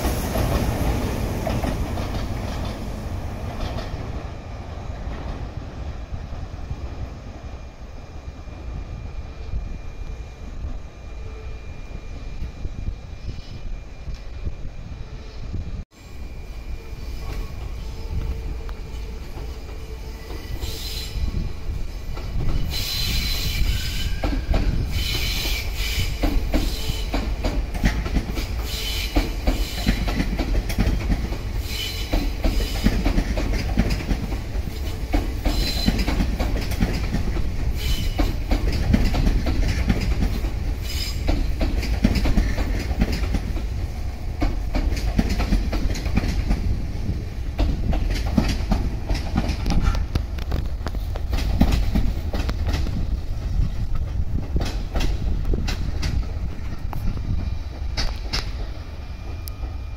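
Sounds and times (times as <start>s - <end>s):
train wheels clattering over rail joints: 0.0s - 4.0s, 22.1s - 46.8s, 47.5s - 59.8s
low train rumble: 0.0s - 59.9s
high wheel squeal: 22.4s - 27.2s.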